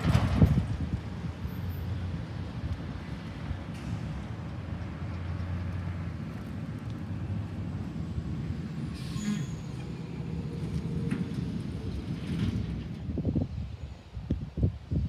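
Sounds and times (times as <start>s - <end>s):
garbage truck diesel engine: 0.0s - 13.6s.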